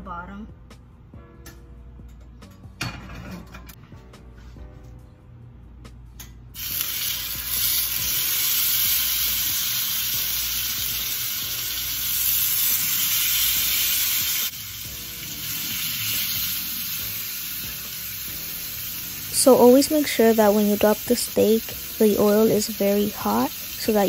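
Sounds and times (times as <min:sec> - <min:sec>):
steaks sizzling in hot oil: 0:06.6 - 0:24.0.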